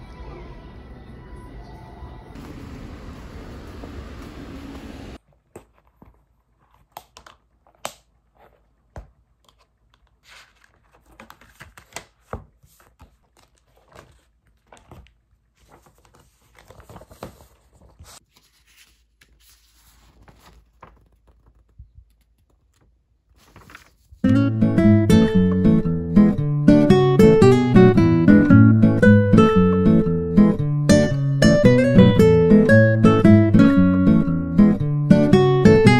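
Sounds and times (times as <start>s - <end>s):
paper rustling: 5.2s - 24.3s.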